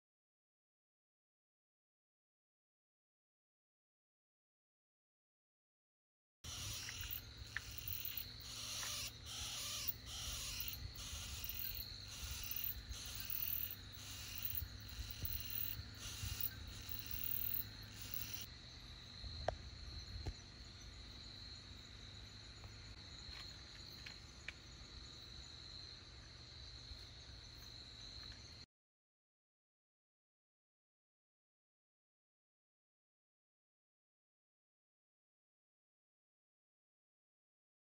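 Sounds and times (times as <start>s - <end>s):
pulsing insect call: 6.5s - 25.8s
crickets trilling: 6.5s - 28.6s.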